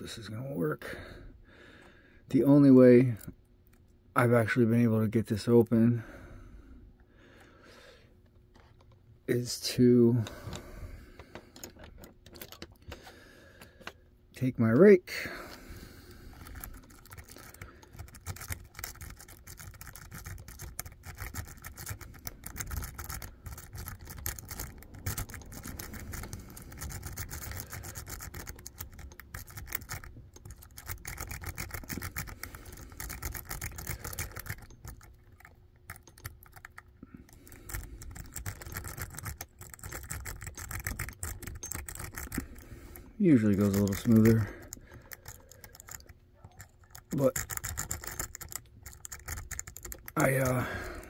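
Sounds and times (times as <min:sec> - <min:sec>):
lock pick scraping and clicking: 0:10.2 - 0:13.1, 0:16.4 - 0:50.6.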